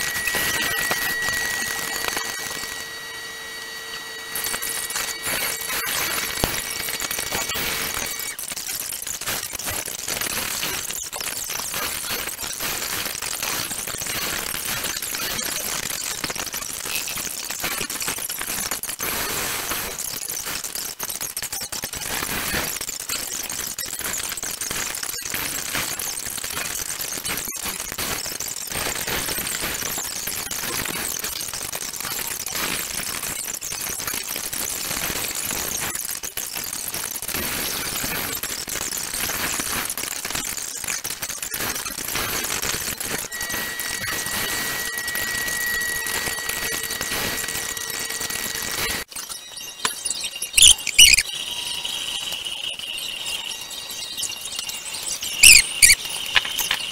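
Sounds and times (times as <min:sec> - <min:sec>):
high whine: 0:00.0 - 0:08.6, 0:42.0 - 0:49.1.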